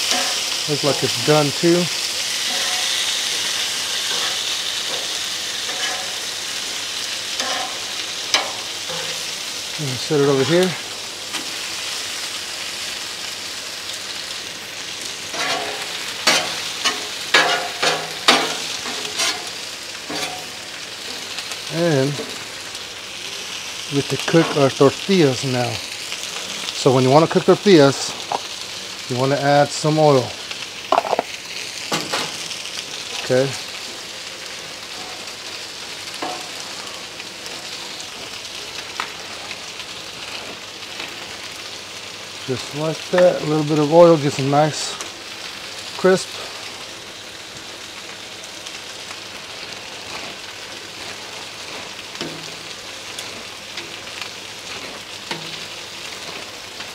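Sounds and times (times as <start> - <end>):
metal spatula scraping griddle: 0.0 - 1.8, 2.4 - 6.4, 7.3 - 9.4, 15.3 - 21.3, 36.2 - 38.3, 50.0 - 54.0
meat sizzling on a griddle: 0.0 - 56.9.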